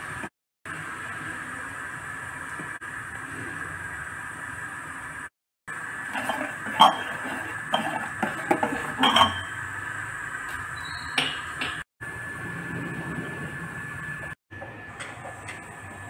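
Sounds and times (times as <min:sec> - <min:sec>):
metal spoon scraping pot: 0:06.1 - 0:09.6.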